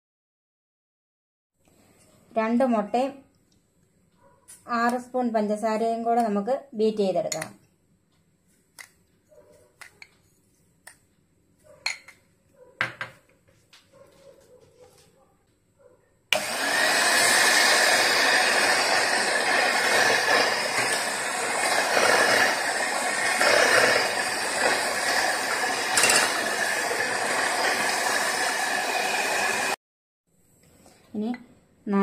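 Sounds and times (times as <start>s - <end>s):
electric hand mixer whisking: 16.3s - 29.8s.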